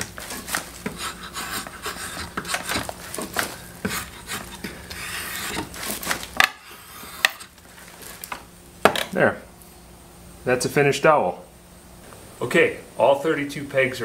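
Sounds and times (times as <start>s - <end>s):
drawknife scraping wood: 0.2s - 7.5s.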